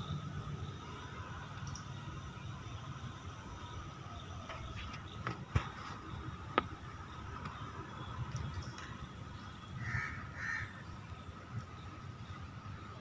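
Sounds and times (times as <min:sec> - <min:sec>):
faint steady tone: 0:00.0 - 0:13.0
crow cawing: 0:09.8 - 0:10.8.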